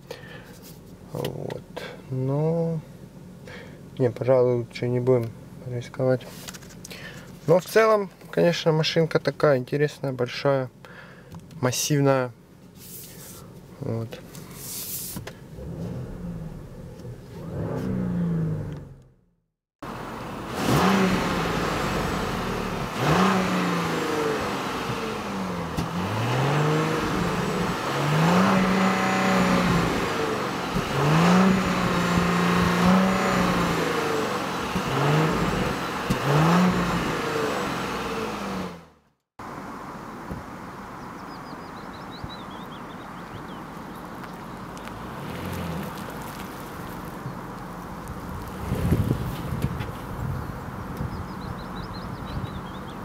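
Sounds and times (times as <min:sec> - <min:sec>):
car engine revving: 0:15.4 - 0:19.1, 0:19.9 - 0:39.0, 0:44.6 - 0:52.8.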